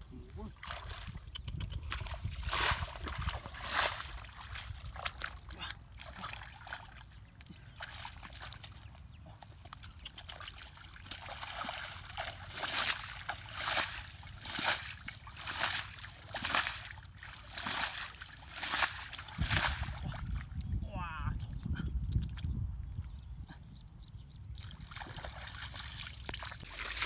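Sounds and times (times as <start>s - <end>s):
hands squelching in mud: 0.5s - 20.4s
mud landing in wet splats: 1.8s - 7.0s, 9.6s - 20.4s.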